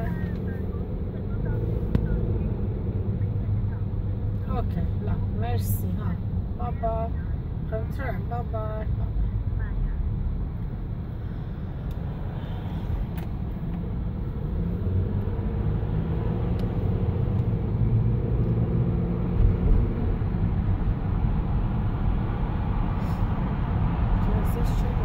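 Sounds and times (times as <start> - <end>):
car road and engine rumble: 0.0 - 25.0.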